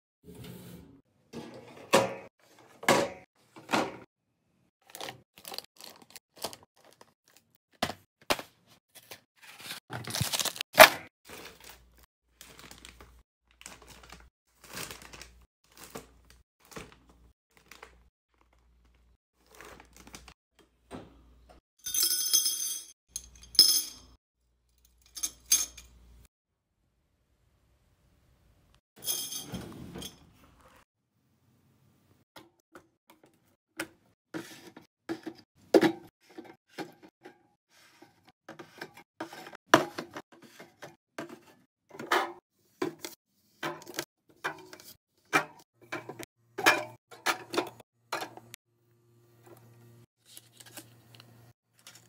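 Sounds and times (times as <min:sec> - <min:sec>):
snack bags crinkling: 0:04.8 - 0:07.6, 0:09.9 - 0:10.6, 0:11.3 - 0:20.3, 0:50.2 - 0:52.0.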